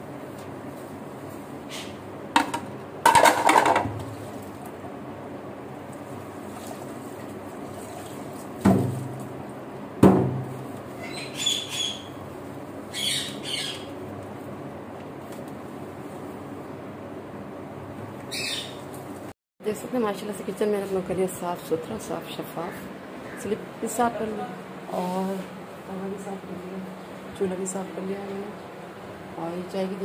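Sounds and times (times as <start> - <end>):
plates clattering in a sink: 2.4 - 4.1.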